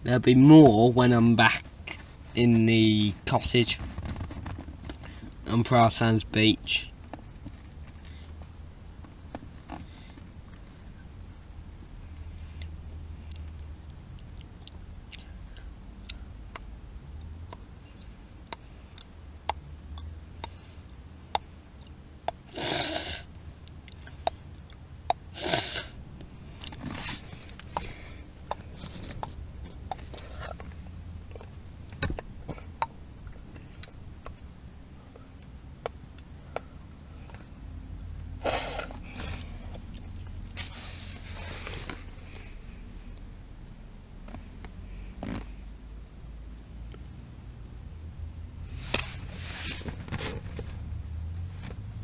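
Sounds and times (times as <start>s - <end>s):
steady low rumble: 0.0s - 22.6s, 23.2s - 52.0s
short rustling: 26.8s - 32.6s, 38.4s - 42.8s, 48.6s - 51.9s.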